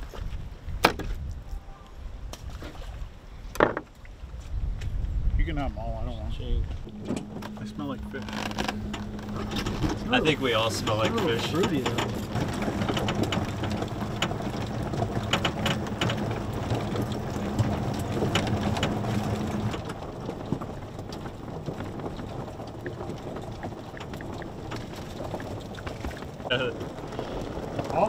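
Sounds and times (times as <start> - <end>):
low hum: 5.6 - 28.0
cart rattling: 6.9 - 28.0
tyres crunching on gravel: 6.9 - 28.0.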